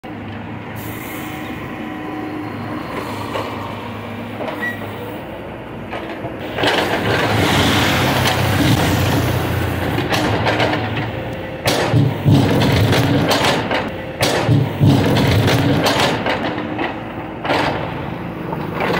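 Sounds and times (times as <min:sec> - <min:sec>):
diesel engine running: 0:03.7 - 0:18.9.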